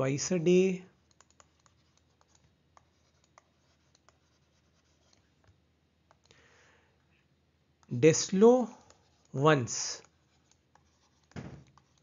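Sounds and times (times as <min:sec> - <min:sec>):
pen scratching while writing: 0:01.0 - 0:05.3, 0:08.8 - 0:09.4, 0:10.0 - 0:12.0.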